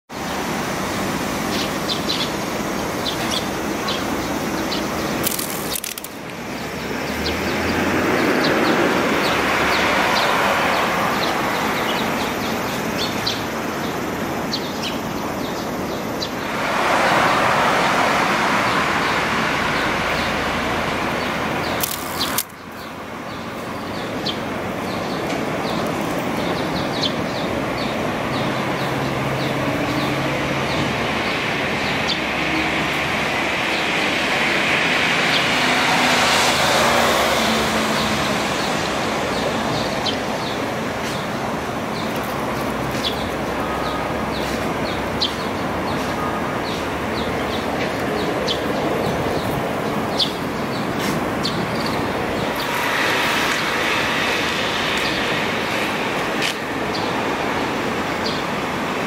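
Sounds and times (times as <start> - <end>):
traffic rushing past: 0.1 - 59.0
sharp click: 21.8 - 22.6.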